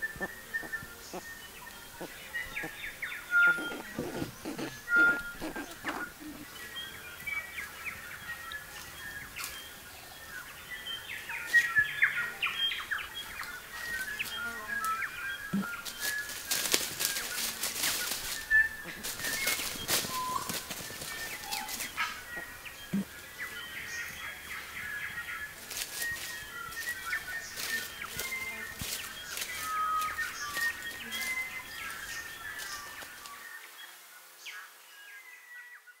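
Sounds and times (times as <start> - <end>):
birds chirping and whistling: 0.0 - 9.7, 10.7 - 33.1
bird walking through dry leaves: 15.6 - 22.5, 24.8 - 33.4.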